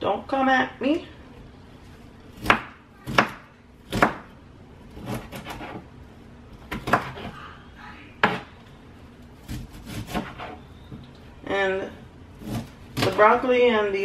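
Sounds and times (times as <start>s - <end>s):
knife chopping on cutting board: 2.4s - 4.3s, 6.7s - 7.3s, 8.2s - 8.5s, 9.4s - 10.6s.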